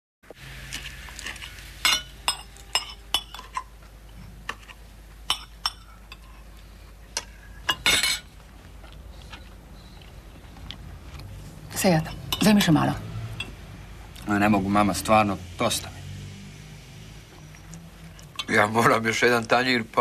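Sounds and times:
cutlery clinking on plates: 0:01.8 - 0:03.8, 0:04.5 - 0:06.5, 0:07.2 - 0:08.4
cutlery clatter: 0:01.9 - 0:03.7, 0:04.5 - 0:06.4, 0:07.2 - 0:08.3.

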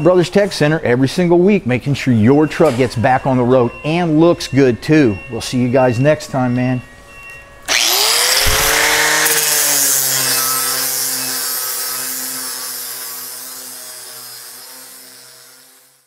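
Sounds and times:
angle grinder grinding sheet steel: 0:07.7 - 0:16.0.

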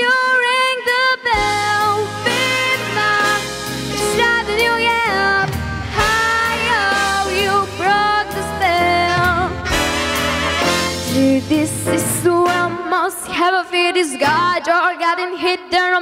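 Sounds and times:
girl singing into microphone: 0:00.0 - 0:03.4, 0:04.0 - 0:09.6, 0:11.2 - 0:16.0
instrumental accompaniment: 0:01.3 - 0:13.5.

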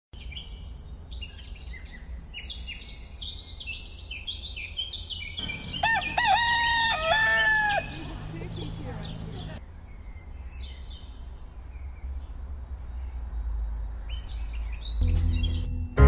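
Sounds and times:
small birds chirping: 0:00.2 - 0:15.7
rooster crowing: 0:05.4 - 0:08.3.

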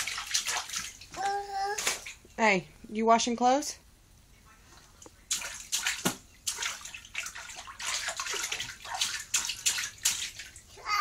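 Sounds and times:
bathwater splashing: 0:00.0 - 0:02.3, 0:04.8 - 0:11.0.

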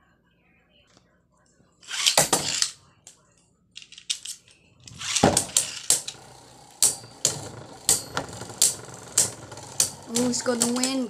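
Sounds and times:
spinning tops clashing: 0:04.9 - 0:11.0.

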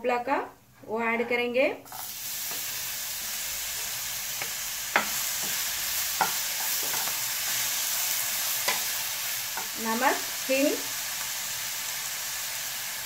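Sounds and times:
pumpkin sizzling in hot oil: 0:01.9 - 0:13.0
wooden spatula knocking on pan: 0:04.4 - 0:05.6.

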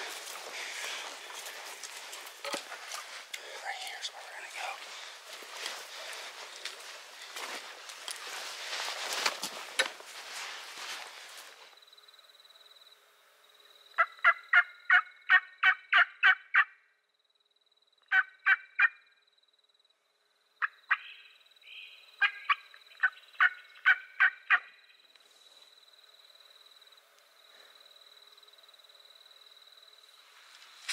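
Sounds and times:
footsteps rustling through brush: 0:00.0 - 0:11.8, 0:30.2 - 0:30.9
turkey call yelps: 0:14.0 - 0:16.7, 0:18.1 - 0:19.0, 0:20.6 - 0:24.7.

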